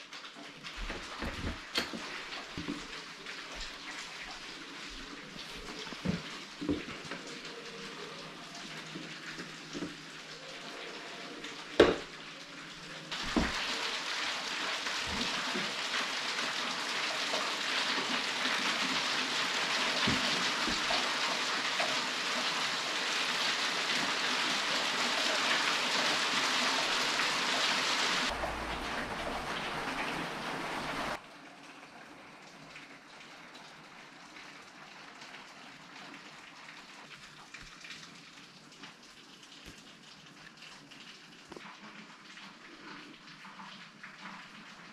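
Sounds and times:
heavy rain hissing: 0:00.9 - 0:31.2.

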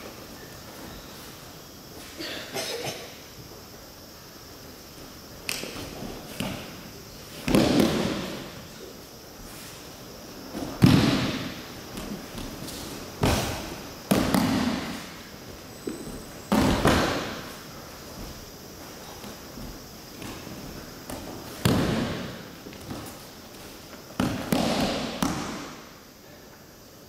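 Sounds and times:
bodies thudding on mats: 0:07.4 - 0:08.6, 0:10.5 - 0:25.7.

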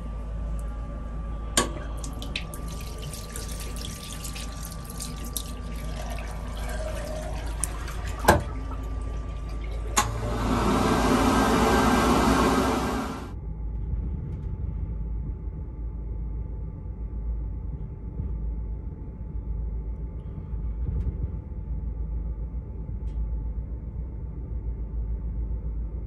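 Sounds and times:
tap water running into basin: 0:01.6 - 0:13.3
hand dryer blowing: 0:06.5 - 0:13.3.

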